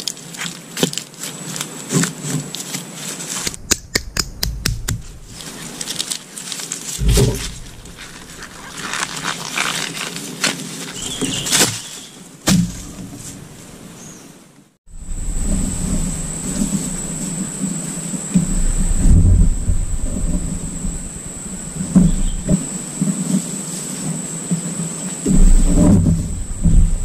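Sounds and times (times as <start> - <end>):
hands digging in soil: 0.0 - 12.2
dry leaves rustling: 0.0 - 14.1, 14.9 - 27.0
heavy thumps: 3.4 - 5.9, 7.0 - 9.2, 15.0 - 22.8, 25.3 - 27.0.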